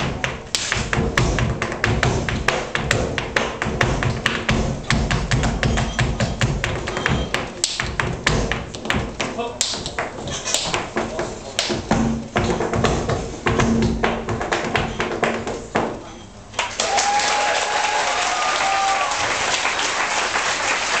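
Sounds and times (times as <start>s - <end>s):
step-dance taps on wooden stage: 0.0s - 16.0s
audience applause: 16.6s - 21.0s.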